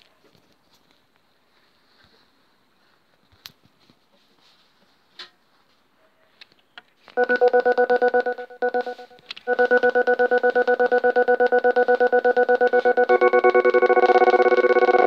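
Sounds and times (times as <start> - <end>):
pulsing keyboard drone: 7.2 - 15.0.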